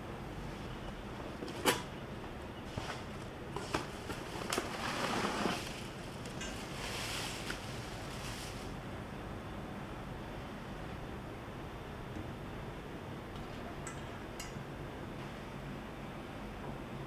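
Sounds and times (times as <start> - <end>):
bubble wrap rustling: 2.7 - 8.8.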